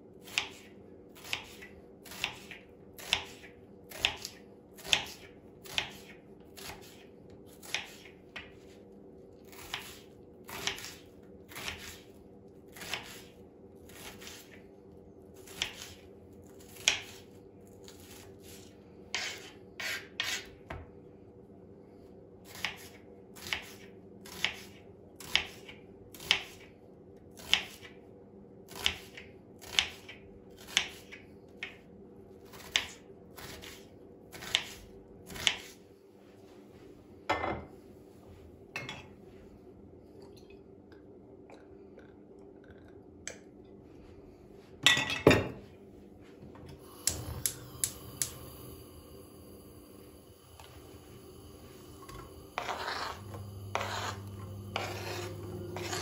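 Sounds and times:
knife chopping on cutting board: 0.2s - 7.0s, 52.6s - 56.0s.

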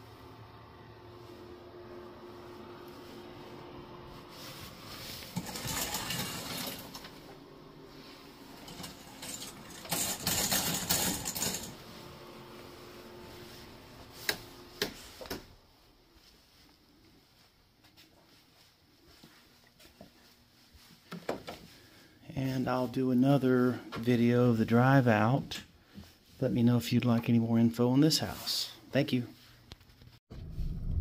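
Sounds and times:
curtain hooks scraping on rod: 8.6s - 11.7s.

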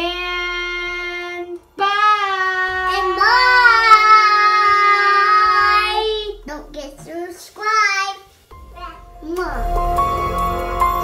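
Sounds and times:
girl and woman singing: 0.0s - 7.8s.

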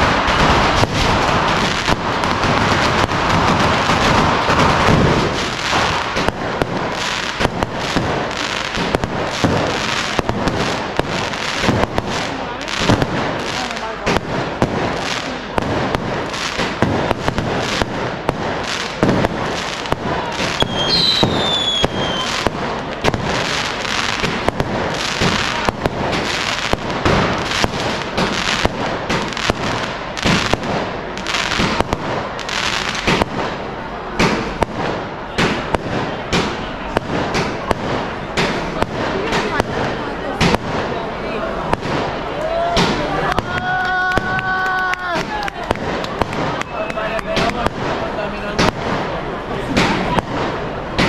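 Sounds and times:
fireworks bangs and crackling: 0.0s - 51.0s
falling firework whistle: 20.6s - 22.4s.

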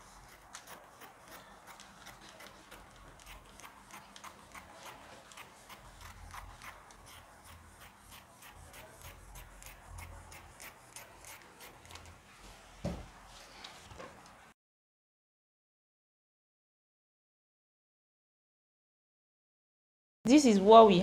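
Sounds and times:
scissors snipping fabric: 0.2s - 12.1s.

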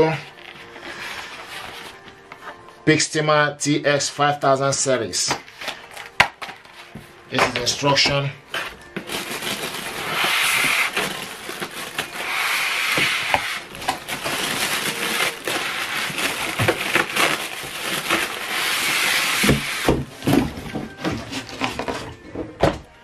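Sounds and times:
polystyrene and cardboard scraping: 0.0s - 2.2s, 8.5s - 22.2s
plastic wrapping rustling: 5.4s - 22.2s.

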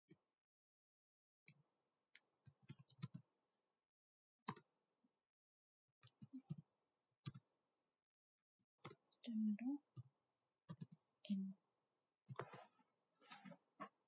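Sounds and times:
faint keyboard typing: 2.4s - 3.2s, 7.2s - 7.4s, 8.8s - 9.2s, 10.7s - 11.4s, 12.3s - 14.0s.

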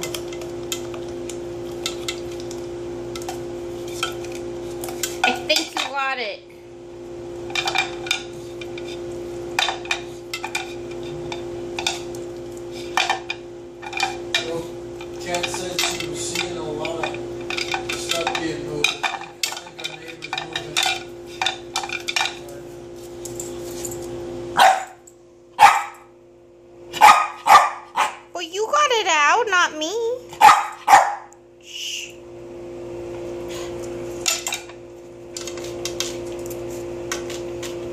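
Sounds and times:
dog barking: 24.6s - 25.0s, 25.6s - 26.1s, 26.9s - 28.3s, 30.4s - 31.3s.

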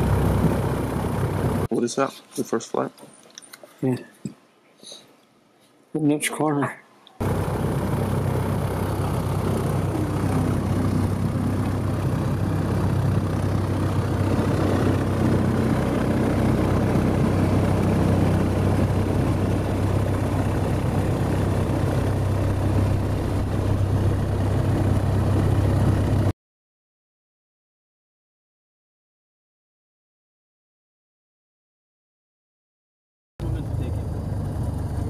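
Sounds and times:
light aircraft engine drone: 0.0s - 1.7s, 7.2s - 26.3s, 33.4s - 35.0s.

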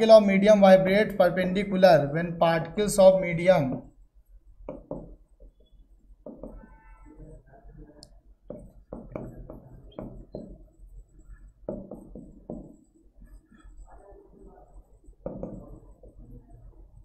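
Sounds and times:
stylus tapping on glass screen: 4.6s - 6.9s, 8.4s - 13.7s, 15.0s - 16.5s.

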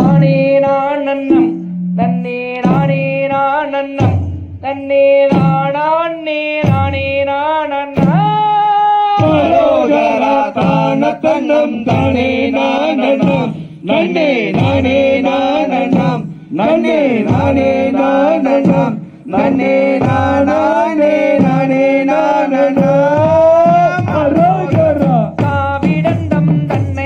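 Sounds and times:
group of voices singing: 0.0s - 27.0s
lead voice singing folk song: 8.4s - 27.0s.

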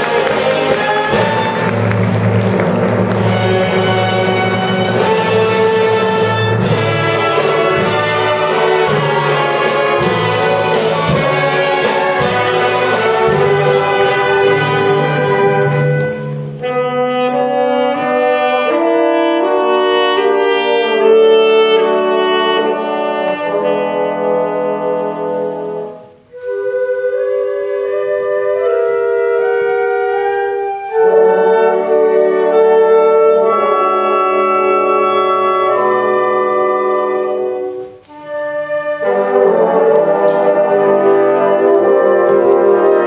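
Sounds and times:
drum beat: 0.0s - 16.3s
brass and saxophone band playing: 0.0s - 43.0s.

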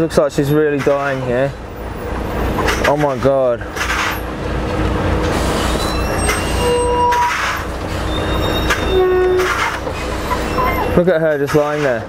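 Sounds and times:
short high squeals: 5.4s - 11.0s.

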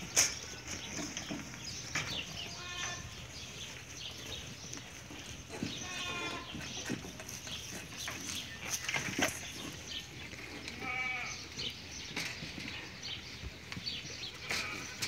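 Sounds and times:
herd knocking and shuffling: 0.1s - 10.6s
goats bleating: 2.4s - 3.3s, 5.5s - 6.7s, 10.5s - 11.6s.

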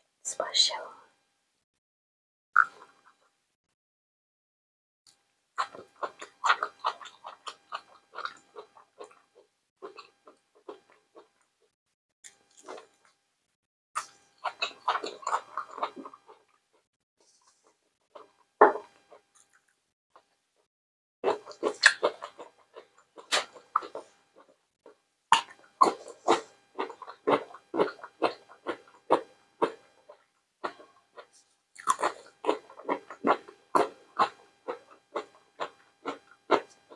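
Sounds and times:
person chewing food: 2.6s - 3.3s, 5.1s - 13.2s, 14.0s - 20.4s, 21.2s - 36.9s
wet bites and mouth clicks: 5.1s - 9.2s, 12.3s - 13.2s, 14.0s - 16.4s, 21.2s - 24.5s, 25.3s - 36.9s.

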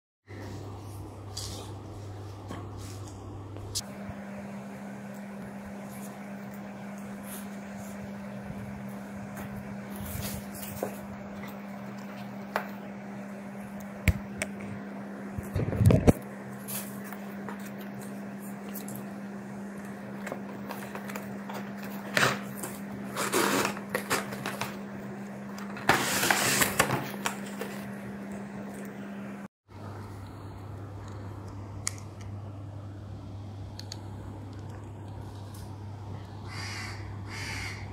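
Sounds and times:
low hum: 27.2s - 37.9s.

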